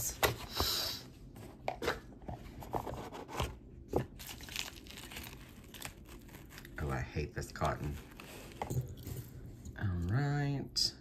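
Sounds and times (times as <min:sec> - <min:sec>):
rustling of wrapping: 0:04.1 - 0:09.6.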